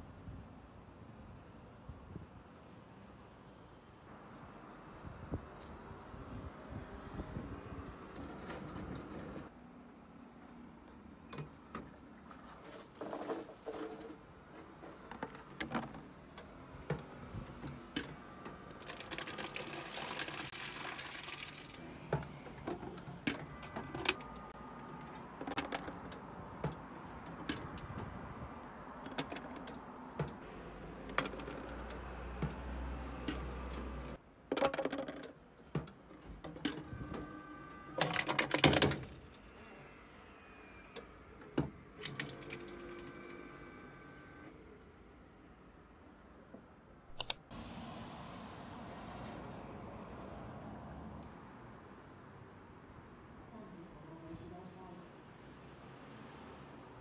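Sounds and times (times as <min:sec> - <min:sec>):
plastic bottles clattering in machine: 0:18.7 - 0:21.8, 0:38.0 - 0:39.2.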